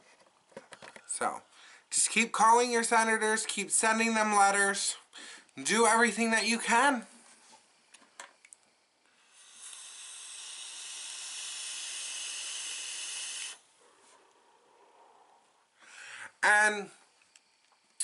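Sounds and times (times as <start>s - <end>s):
electronic cigarette hiss: 8.6s - 13.7s.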